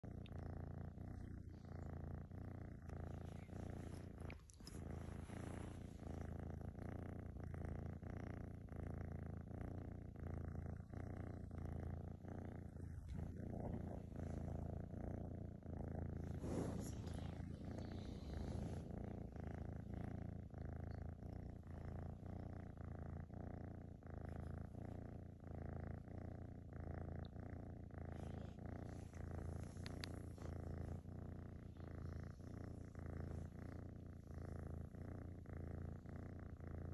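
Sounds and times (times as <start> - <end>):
kitten purring: 0.0 - 36.9.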